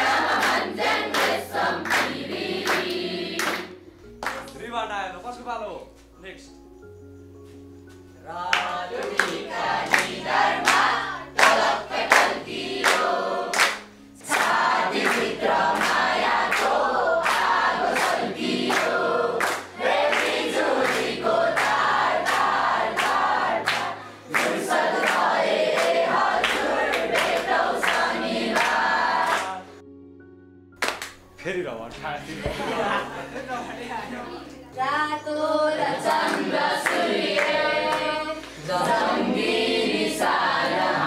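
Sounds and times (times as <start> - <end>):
children singing together: 0.0 - 3.8, 8.6 - 29.7, 34.8 - 41.0.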